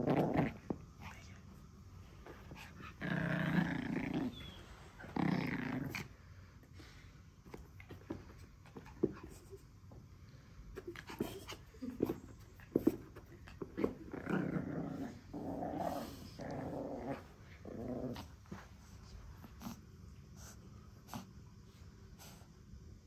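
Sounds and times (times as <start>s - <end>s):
puppy growling: 0.0s - 0.8s, 2.4s - 6.3s, 10.8s - 18.6s.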